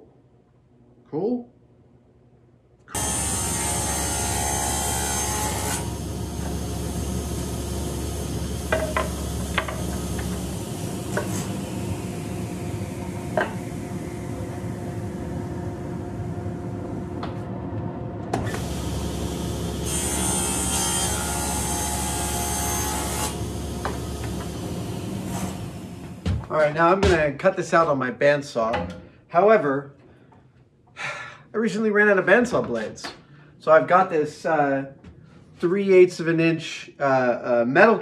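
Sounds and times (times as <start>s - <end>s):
table saw cutting plywood: 2.9s - 15.2s, 18.4s - 26.3s
table saw running: 3.0s - 15.8s, 18.4s - 26.3s
wood pieces knocking: 8.7s - 10.4s.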